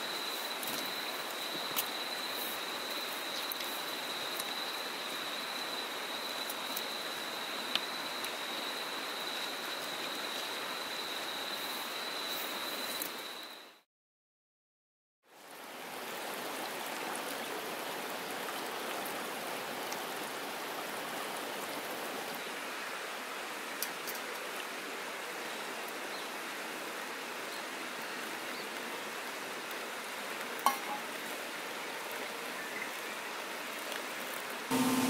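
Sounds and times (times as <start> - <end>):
stream rushing over pebbles: 15.4 - 35.0.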